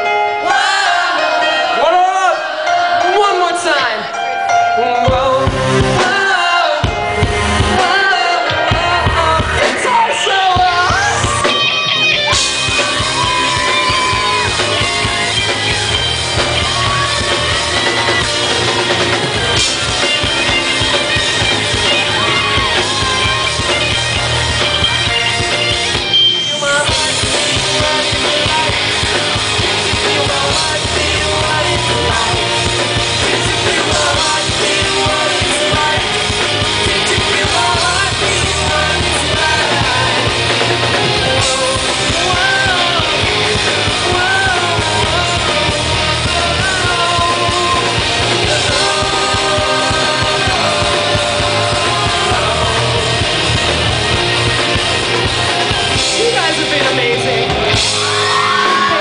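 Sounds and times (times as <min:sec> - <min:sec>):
live rock band playing: 0:00.0 - 0:59.0
man singing lead: 0:00.0 - 0:59.0.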